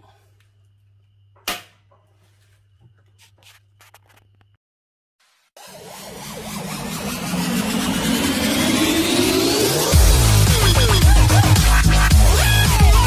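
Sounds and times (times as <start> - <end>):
loud rising sound: 5.6 - 11.0.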